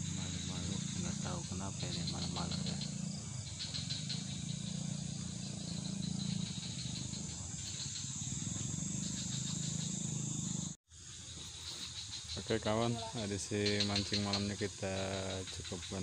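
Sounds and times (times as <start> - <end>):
low drone: 0.0 - 10.8
high-pitched hiss: 0.0 - 16.0
insects chirping: 0.0 - 16.0.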